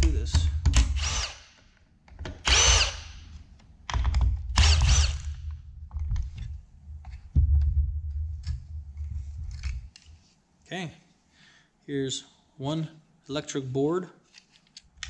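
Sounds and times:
cordless drill motor whine: 1.0s - 1.5s, 2.5s - 3.1s, 4.6s - 5.4s.

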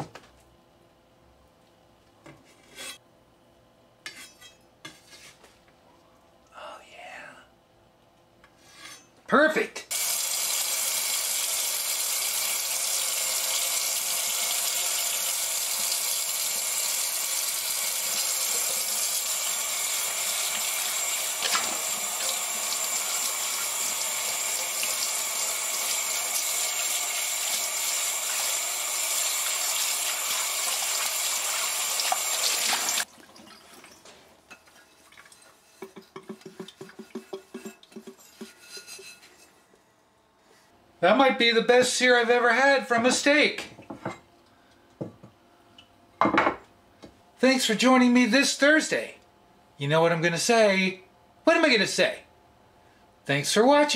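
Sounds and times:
sponge scrubbing a skillet: 34.5s - 39.6s.

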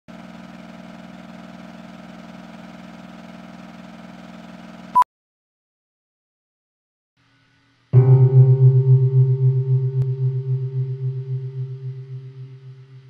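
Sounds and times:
mechanical hum with flutter: 0.1s - 4.9s.

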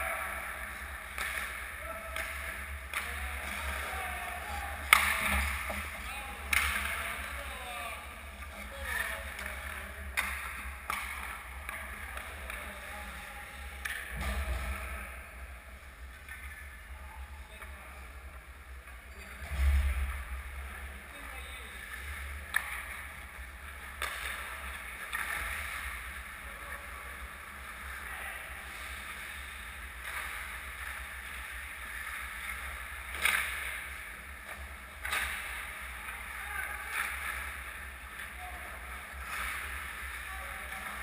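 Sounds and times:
skates scraping ice: 21.8s - 41.0s.

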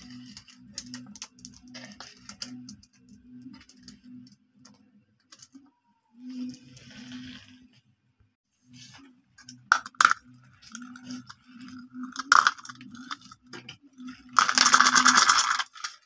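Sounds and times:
glass marbles clicking: 9.7s - 16.0s.

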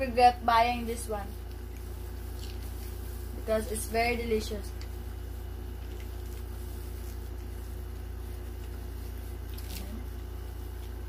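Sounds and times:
steady low hum: 0.0s - 11.0s
soft eating squishes and clicks: 1.3s - 3.4s, 4.7s - 11.0s.

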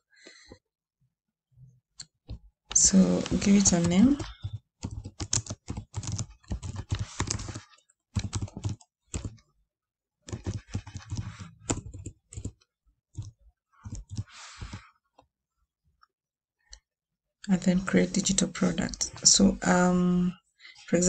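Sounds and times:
keyboard typing: 2.0s - 9.4s, 10.3s - 14.9s.

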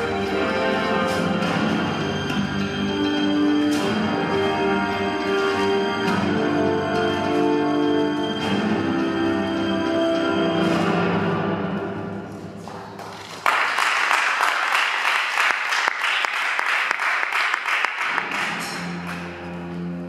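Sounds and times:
background music: 0.0s - 13.4s, 18.0s - 20.0s
audience applause: 12.7s - 18.9s.

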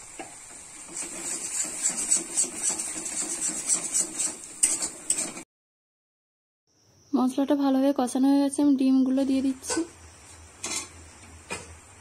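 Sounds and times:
metal spatula scraping a pan: 0.9s - 5.4s.

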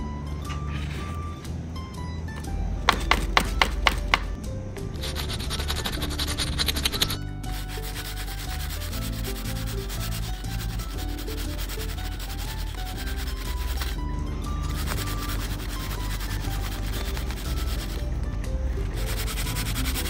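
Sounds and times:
quiet background music: 0.0s - 20.0s
brush rubbing on paper: 5.0s - 14.0s, 14.6s - 18.1s, 18.8s - 20.0s.

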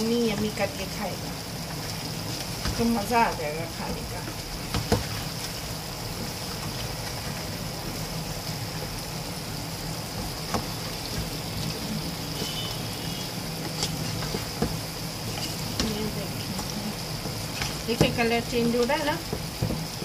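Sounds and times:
meat sizzling in a pan: 0.0s - 20.0s
wooden spatula scraping a pan: 10.2s - 20.0s.

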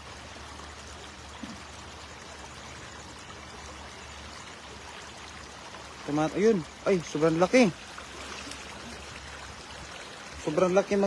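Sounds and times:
river water flowing: 0.0s - 11.0s.

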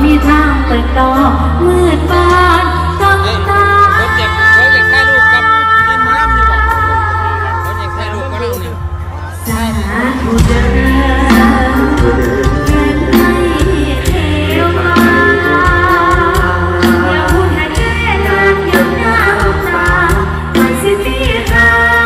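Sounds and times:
sustained chords and strong bass: 0.0s - 22.0s
person singing: 9.3s - 22.0s.

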